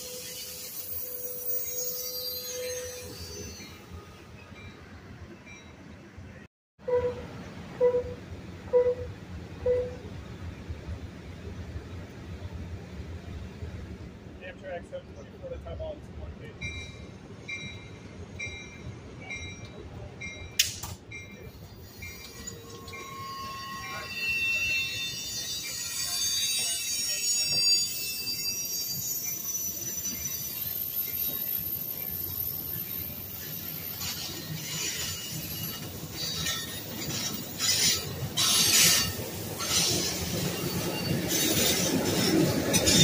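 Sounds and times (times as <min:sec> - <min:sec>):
train wheels rumbling on track: 0:00.0 - 0:43.0
wheels screeching: 0:21.5 - 0:43.0.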